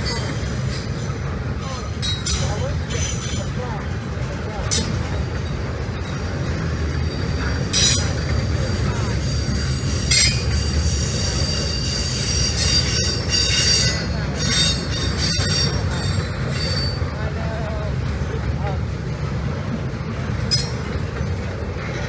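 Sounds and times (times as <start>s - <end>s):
freight train rumbling past: 0.0s - 22.0s
high-pitched wheel squeal: 7.0s - 17.0s.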